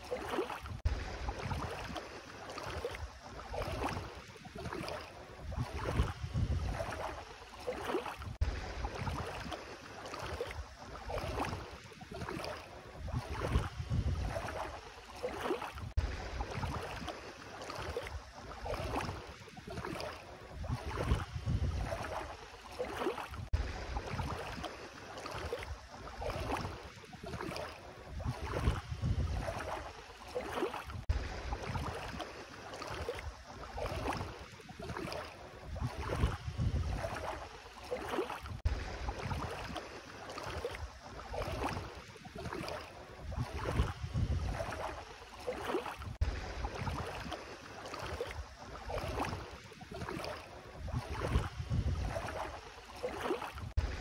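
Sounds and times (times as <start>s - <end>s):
feet wading through water: 0.0s - 54.0s.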